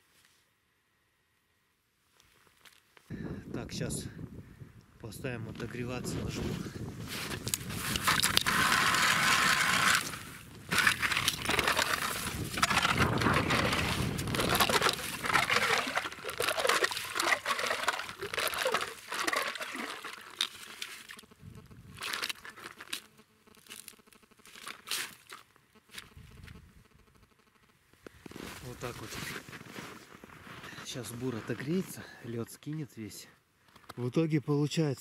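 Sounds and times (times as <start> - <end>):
ice auger crunching through ice: 6.8 - 26.2.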